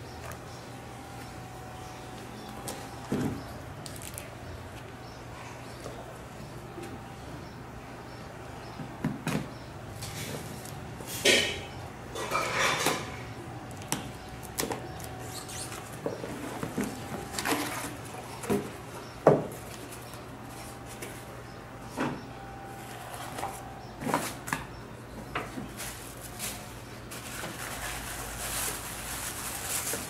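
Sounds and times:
cardboard scraping and rustling: 25.6s - 30.0s.

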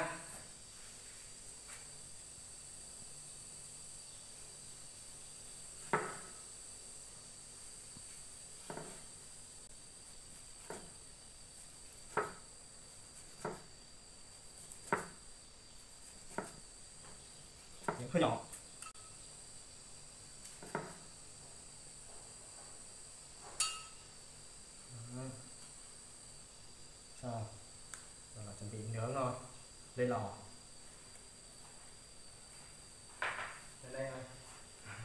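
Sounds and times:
insect chirring: 0.0s - 35.0s
knife striking wooden board: 5.8s - 6.4s, 8.6s - 9.0s, 12.1s - 12.4s, 13.3s - 13.7s, 16.3s - 16.6s, 20.5s - 21.0s.

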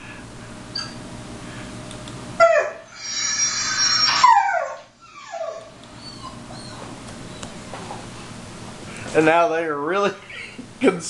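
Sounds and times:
dog whining high-pitched: 0.7s - 1.0s, 2.4s - 7.5s
dog yelping: 2.4s - 7.5s.

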